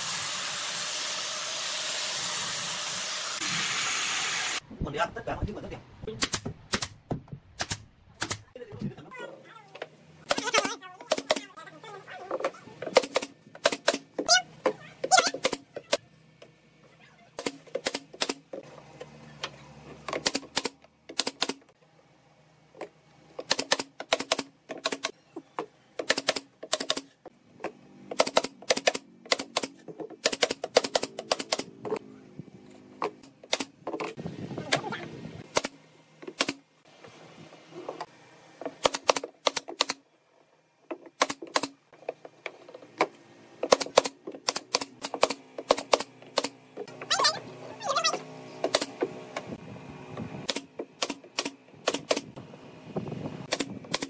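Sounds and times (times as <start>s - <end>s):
nail gun firing clacks: 6.2s - 7.0s, 7.6s - 8.5s, 10.3s - 11.5s, 12.9s - 14.1s, 17.4s - 18.4s, 20.1s - 21.6s, 23.4s - 25.1s, 26.0s - 27.1s, 28.1s - 31.7s, 33.4s - 33.8s, 35.4s - 36.6s, 38.8s - 40.0s, 41.2s - 41.8s, 43.6s - 46.6s, 48.6s - 49.1s, 50.5s - 52.3s, 53.5s - 54.0s.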